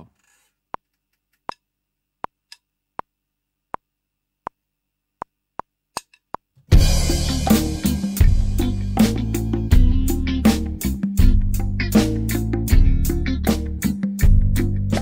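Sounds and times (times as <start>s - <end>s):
band playing: 6.7s - 15.0s.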